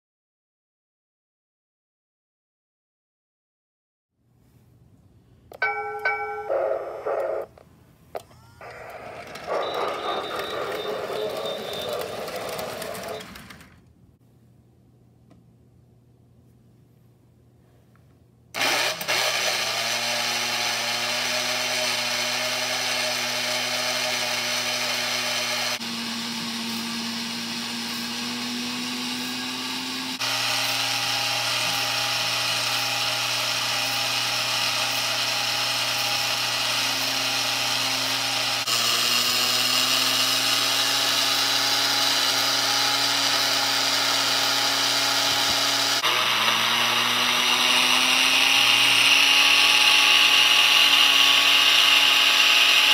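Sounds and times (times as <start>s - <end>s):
electric motor whining and running: 8.6s - 13.8s, 18.6s - 52.9s.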